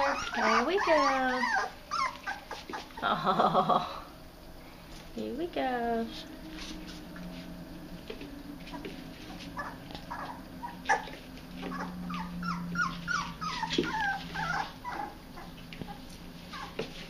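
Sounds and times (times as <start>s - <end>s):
puppies whimpering and yipping: 0.0s - 3.0s, 8.1s - 17.0s.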